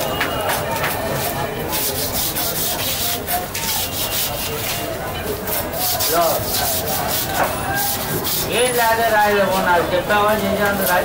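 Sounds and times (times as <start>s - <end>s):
knife scraping fish scales: 1.7s - 9.0s.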